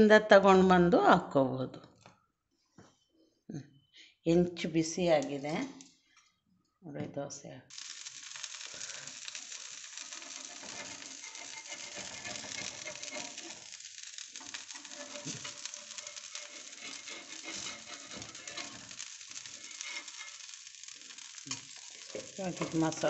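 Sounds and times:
batter sizzling on hot iron: 5.2s - 6.0s, 7.7s - 23.0s.

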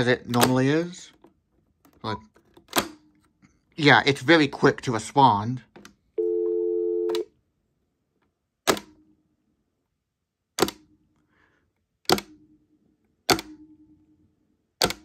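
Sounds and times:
faint low phone tone: 6.2s - 7.3s.

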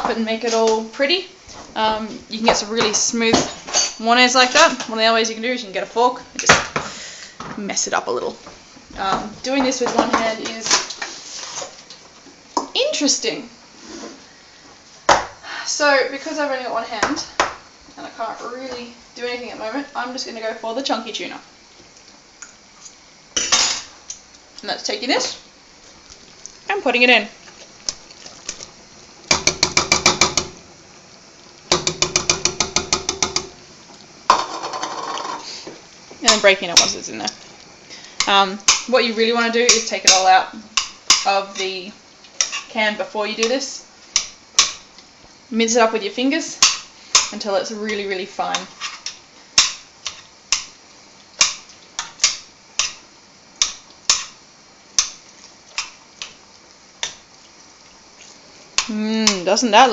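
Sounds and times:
kitchenware knocking together: 31.7s - 33.5s.

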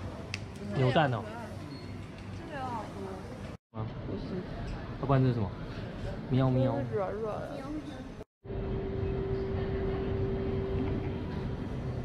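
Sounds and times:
low street rumble: 7.2s - 12.0s.

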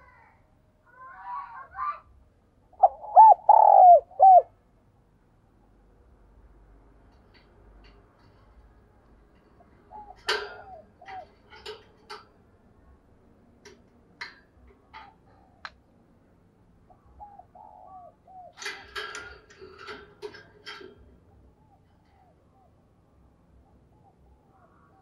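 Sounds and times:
dove cooing: 2.8s - 4.6s, 9.6s - 11.8s, 16.9s - 20.0s.

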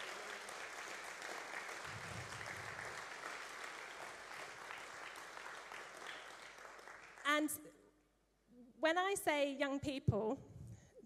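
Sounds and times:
crowd clapping: 0.0s - 7.4s.

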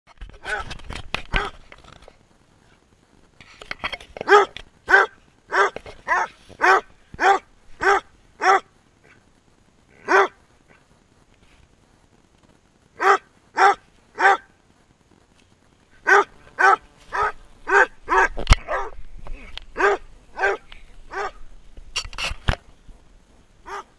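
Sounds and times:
dog barking: 4.3s - 9.2s, 10.0s - 10.4s, 13.0s - 14.5s, 16.0s - 19.0s, 19.8s - 21.4s, 23.6s - 23.9s.

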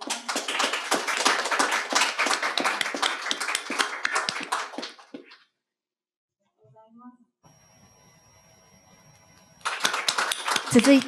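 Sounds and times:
audience applauding: 0.0s - 5.2s, 9.6s - 11.0s.

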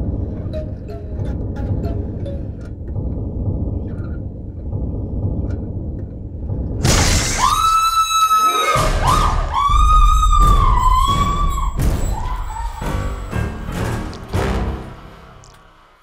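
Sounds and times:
woman screaming in terror: 7.4s - 12.9s.

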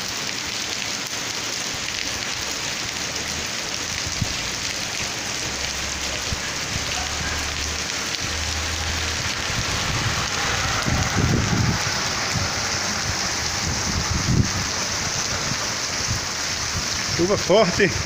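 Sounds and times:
heavy rain on street: 0.0s - 18.0s
low rumble: 8.3s - 16.9s.

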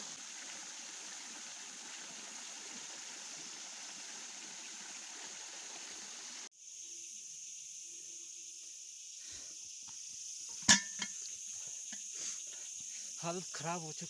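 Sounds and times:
stream water rushing: 0.0s - 6.5s.

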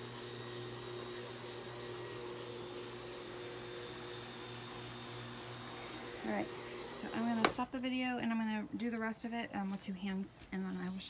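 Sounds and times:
spin mop motor hum: 0.0s - 7.6s.

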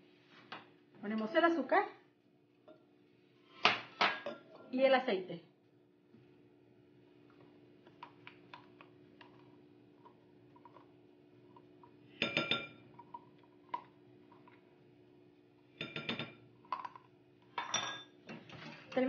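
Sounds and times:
faint steady hum: 0.0s - 19.0s
glass bowl clinking: 4.0s - 4.5s, 12.2s - 12.8s, 15.8s - 18.2s.

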